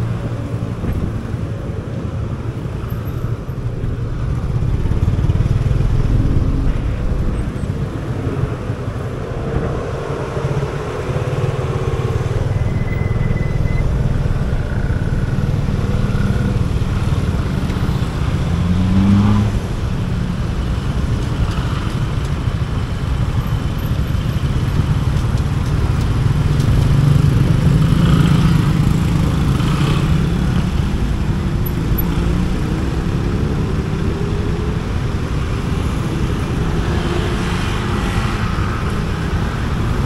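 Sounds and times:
road and traffic noise: 0.0 - 40.0
motorcycle engine running: 4.0 - 9.0, 13.9 - 18.5
engine revving: 14.3 - 19.7.

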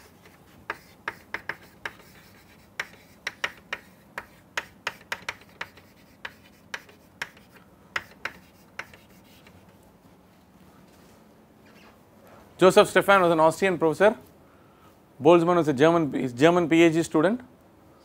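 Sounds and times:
chalk tapping and scratching on blackboard: 0.0 - 9.8.

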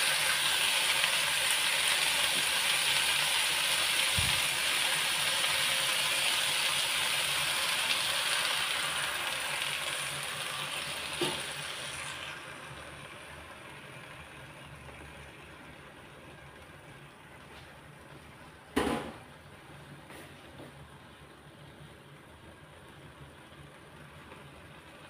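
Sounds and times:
egg sizzling in a pan: 0.0 - 18.2.

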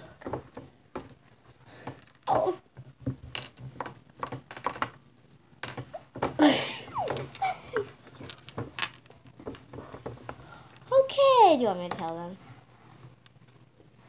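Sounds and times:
handling clicks and knocks: 0.1 - 6.4, 7.0 - 10.4
girl laughing: 6.4 - 8.0.

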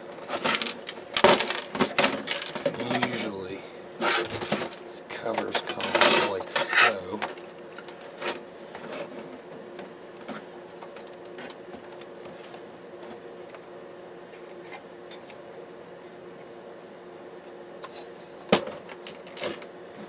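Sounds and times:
steady low hum: 0.0 - 20.0
plastic and metal parts scraping: 0.2 - 3.4, 4.0 - 7.4.

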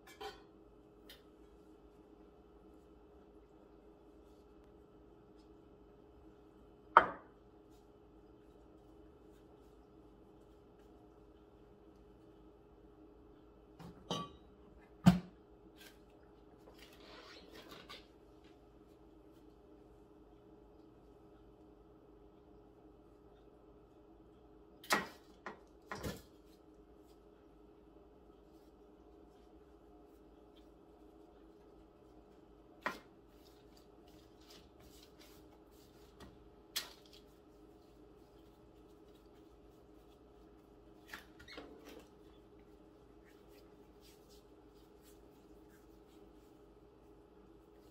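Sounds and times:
dough rustling: 0.0 - 12.8, 25.2 - 47.9
steady low hum: 0.0 - 17.0, 18.0 - 47.9.

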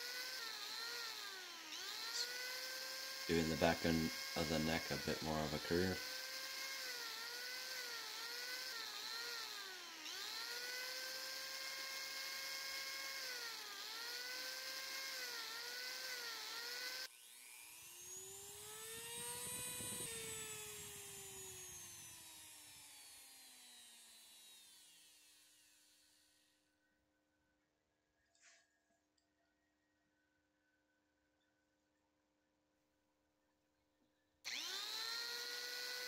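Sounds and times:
angle grinder whining on wood: 0.0 - 26.5, 34.5 - 36.0.

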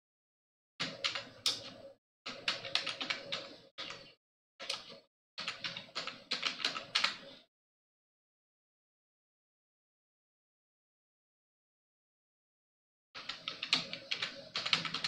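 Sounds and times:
keyboard typing: 0.8 - 7.5, 13.2 - 15.0.

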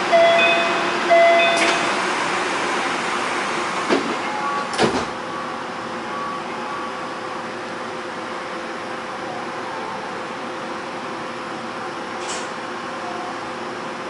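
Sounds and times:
door chime beeps: 0.2 - 1.8
sliding doors shutting: 0.4 - 5.2, 12.2 - 12.6.

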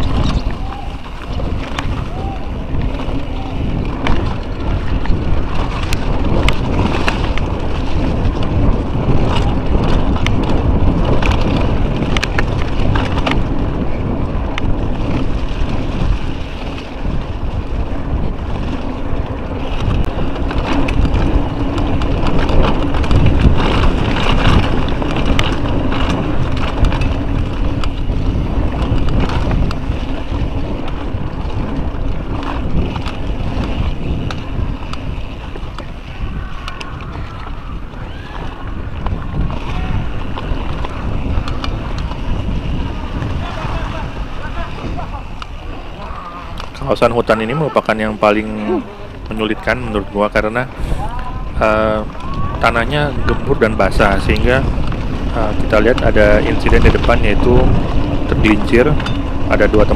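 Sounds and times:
bike clattering over dirt trail: 0.0 - 59.9
wind roaring over microphone: 0.0 - 59.9.

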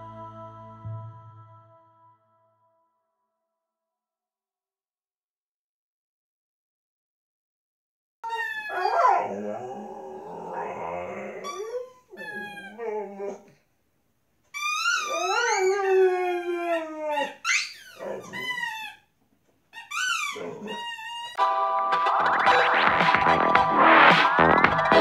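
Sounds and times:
dog howling and whining: 8.2 - 13.6, 14.6 - 19.0, 20.0 - 21.4.

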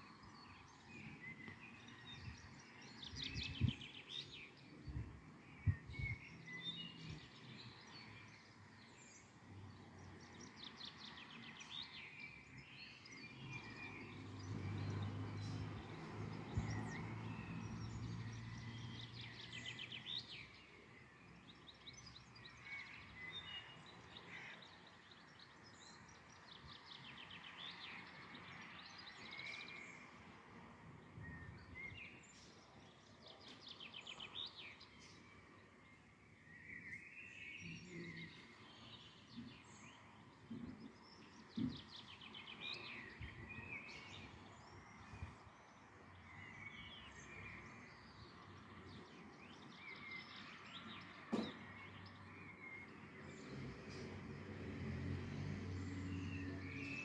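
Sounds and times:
small birds singing: 0.0 - 57.0
brief thump: 51.3 - 51.6.

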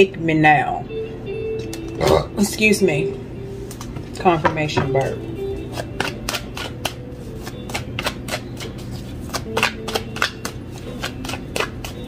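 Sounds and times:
cards being shuffled: 5.8 - 12.0.

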